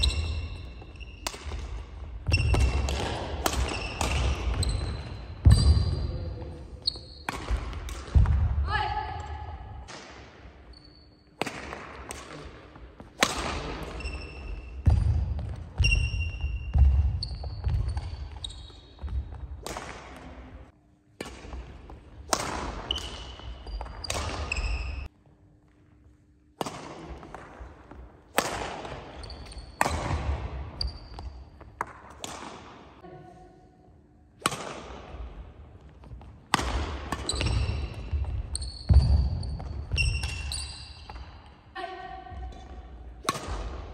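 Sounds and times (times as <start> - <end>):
rackets hitting shuttlecock: 0.0 - 6.1, 7.2 - 8.6, 11.4 - 18.4, 19.0 - 20.2, 21.1 - 25.1, 26.6 - 32.9, 34.4 - 41.4, 43.2 - 43.9
sneakers squeaking: 0.0 - 8.2, 10.4 - 11.6, 12.2 - 20.5, 21.2 - 26.3, 27.8 - 32.2, 35.8 - 43.9.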